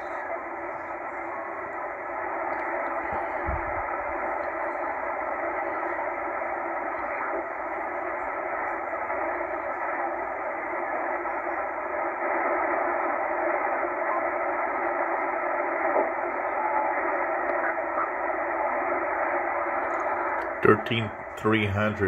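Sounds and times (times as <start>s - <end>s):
radio static hiss: 0.0s - 22.0s.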